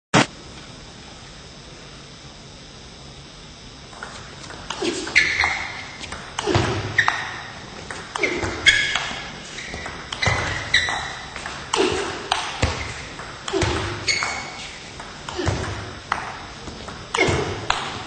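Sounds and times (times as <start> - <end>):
table tennis ball hits: 3.9 - 18.0.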